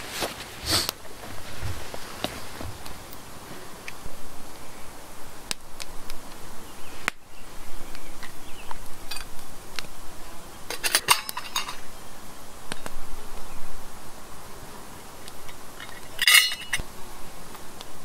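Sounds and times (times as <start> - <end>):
metal cookware clinking: 10.8 - 11.8, 16.2 - 16.8.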